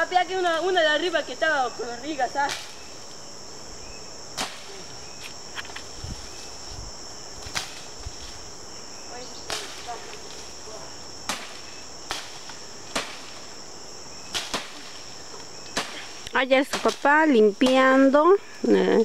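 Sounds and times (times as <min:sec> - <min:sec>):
jungle insects buzzing: 0:00.0 - 0:19.0
machete chopping cane: 0:04.4 - 0:04.7, 0:11.3 - 0:13.4, 0:14.3 - 0:15.0, 0:15.7 - 0:16.1, 0:16.7 - 0:17.0.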